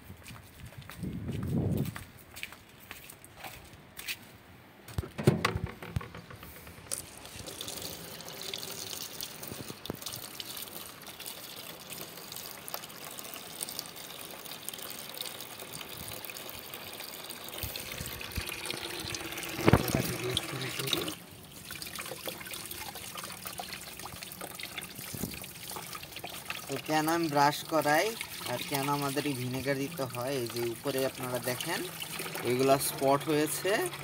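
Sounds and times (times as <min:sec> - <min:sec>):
sharp knocks and clatters: 0:04.9 - 0:07.2
tap water running into bucket: 0:05.3 - 0:34.0.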